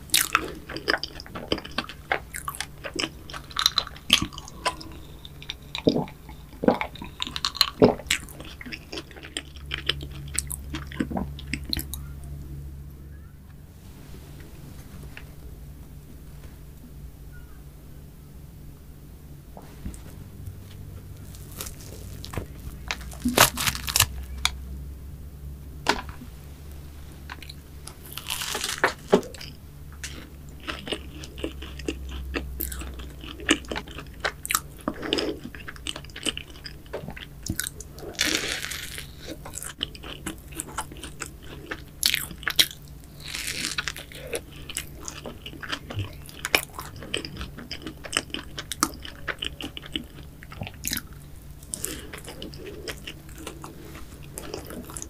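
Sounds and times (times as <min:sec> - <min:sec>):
crunching and chewing: 0:00.0 - 0:12.5, 0:19.6 - 0:24.6, 0:27.2 - 0:55.0
pastry cracking apart: 0:21.2 - 0:24.6, 0:27.4 - 0:29.4.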